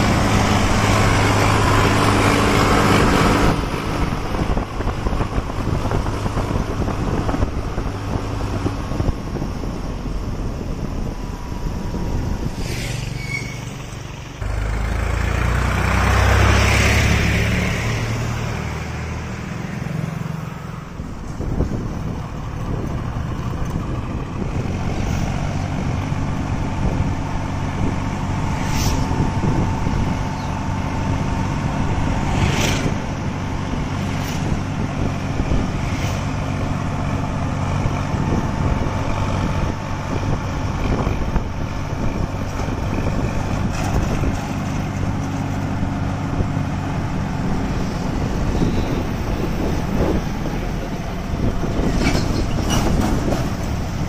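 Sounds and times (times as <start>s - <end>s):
diesel tractor engine running: 0.0s - 12.6s, 13.7s - 54.0s
road and wind noise: 0.0s - 54.0s.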